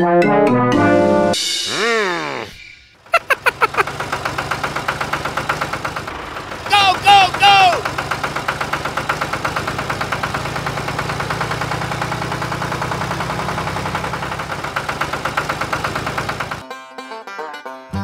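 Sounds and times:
tractor engine chugging: 3.0s - 16.6s.

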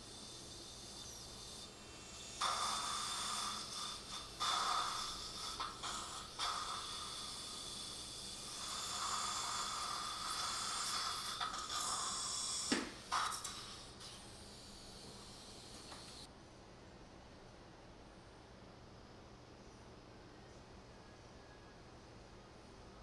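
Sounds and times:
suction tip slurping liquid: 0.7s - 15.7s.

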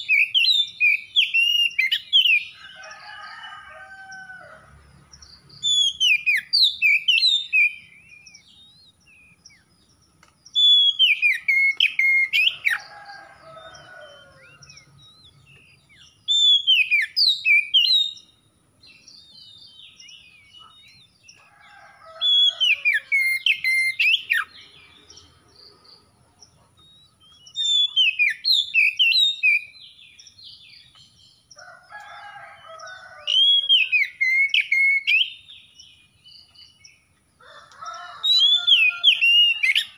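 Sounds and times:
bird singing whistled phrases: 5.6s - 9.0s, 10.6s - 12.6s, 16.3s - 18.2s, 26.9s - 29.8s, 33.4s - 35.5s.

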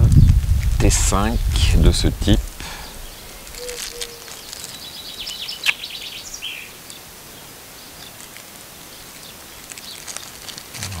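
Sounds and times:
plastic bag crinkling: 2.9s - 5.4s, 9.6s - 11.0s.

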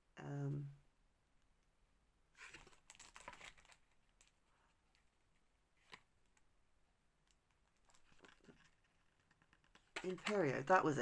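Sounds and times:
cardboard card rustling: 2.4s - 5.1s, 7.3s - 10.7s.

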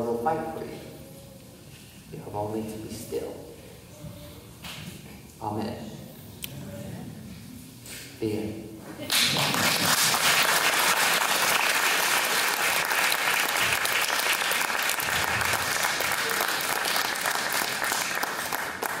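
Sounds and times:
audience applauding: 9.1s - 19.0s.

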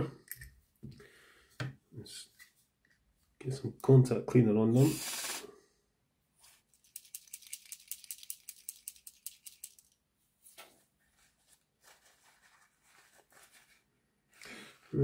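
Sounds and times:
short hiss: 4.8s - 5.6s
rattle of light clicks: 6.8s - 10.0s
tissue paper rustling: 10.5s - 13.9s.

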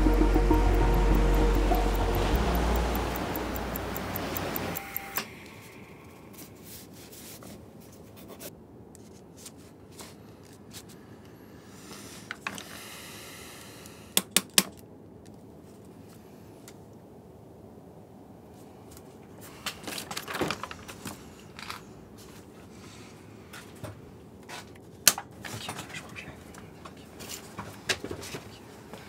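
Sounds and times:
sharp clicks: 0.0s - 5.3s.

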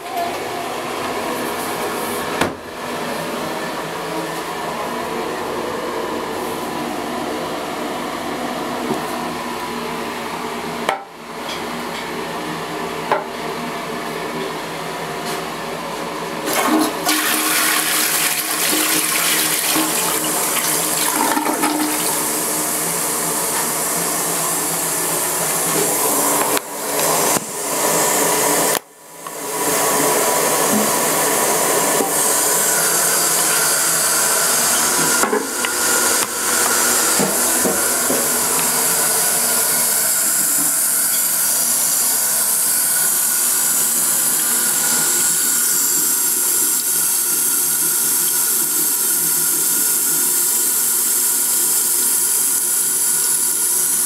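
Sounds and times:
toilet tank refilling hiss: 16.4s - 28.8s, 29.4s - 54.0s.

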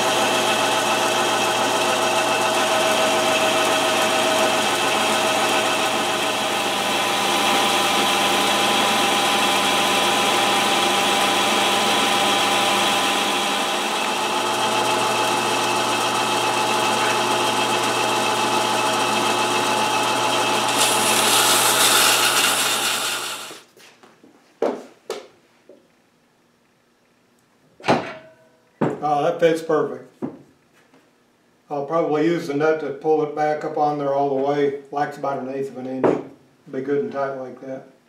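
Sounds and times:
metal lathe running: 0.0s - 23.7s.

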